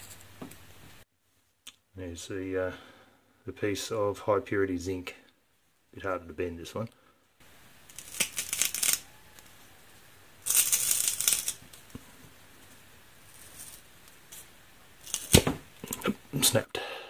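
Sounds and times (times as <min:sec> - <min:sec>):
metal bar crackling: 0:07.8 - 0:09.6, 0:10.4 - 0:12.0, 0:12.8 - 0:16.1.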